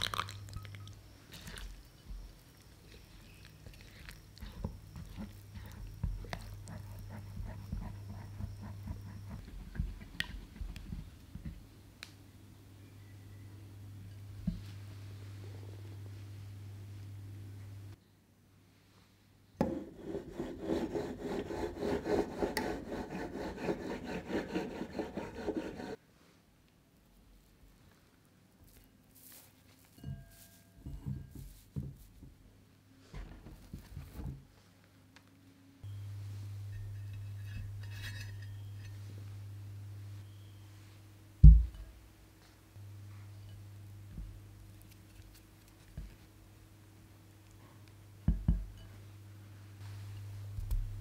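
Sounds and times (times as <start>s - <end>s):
steady low hum: 0.0s - 18.0s, 35.0s - 51.0s
serrated blade sawing through cake: 20.0s - 26.0s.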